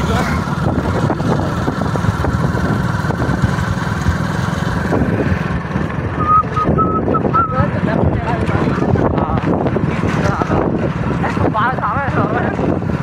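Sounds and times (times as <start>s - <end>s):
vehicle engine running: 0.0s - 13.0s
short high chirps: 6.2s - 7.6s
thin wavering high tone: 6.2s - 7.6s.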